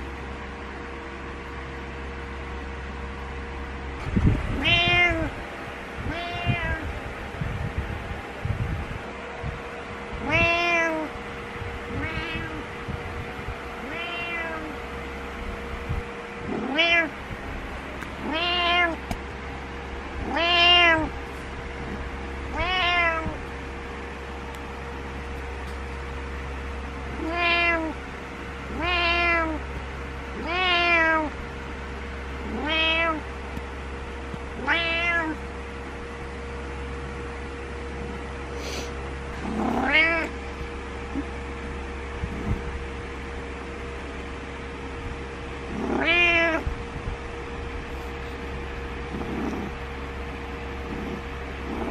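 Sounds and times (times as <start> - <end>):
cat meowing: 4.5 - 5.3, 6.0 - 6.9, 10.2 - 11.1, 11.9 - 12.7, 13.8 - 14.7, 16.5 - 17.2, 18.2 - 19.1, 20.2 - 21.1, 22.5 - 23.5, 27.1 - 28.0, 28.7 - 29.6, 30.4 - 31.4, 32.4 - 33.3, 34.5 - 35.4, 39.4 - 40.4, 45.7 - 46.7, 50.8 - 51.9.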